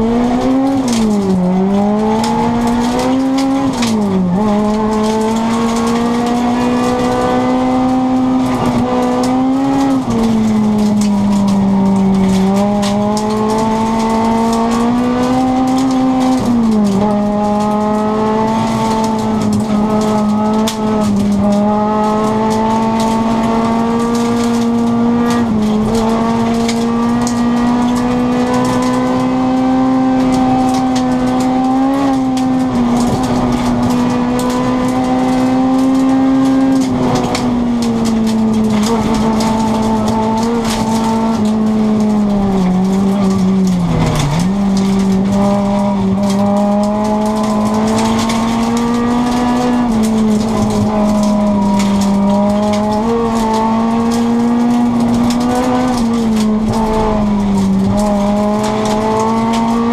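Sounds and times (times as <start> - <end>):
gravel crackling under car: 0.0 - 59.9
rally car engine revving: 0.0 - 59.9.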